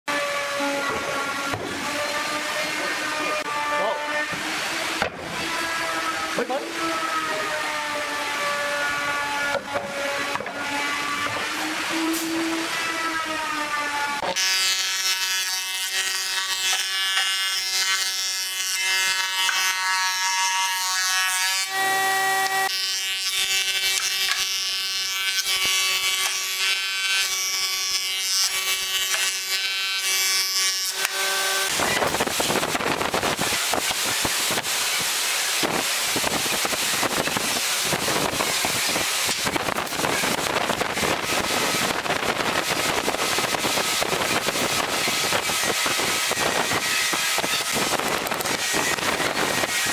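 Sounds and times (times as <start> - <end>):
planer-thicknesser whining: 0.1 - 14.8
harsh rough rushing noise: 31.7 - 49.9.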